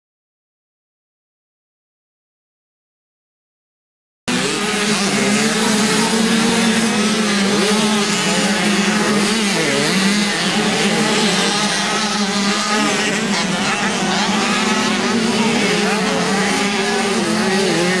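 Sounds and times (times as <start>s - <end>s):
motocross bike engines: 4.3s - 18.0s.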